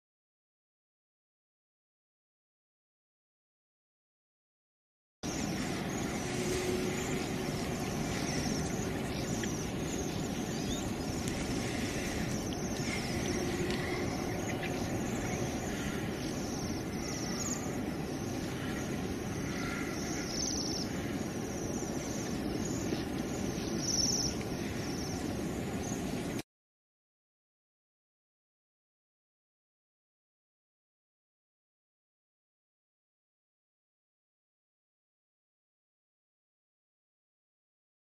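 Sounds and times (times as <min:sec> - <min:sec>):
small birds chirping: 0:05.2 - 0:26.4
steady background rumble: 0:05.2 - 0:26.4.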